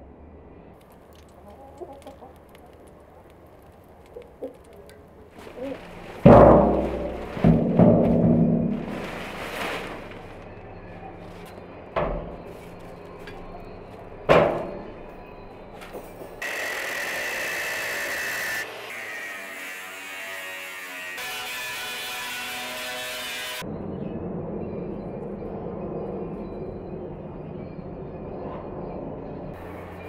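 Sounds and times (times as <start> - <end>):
thumps on steel drum: 6.2 - 8.9
angle grinder whining: 16.4 - 23.6.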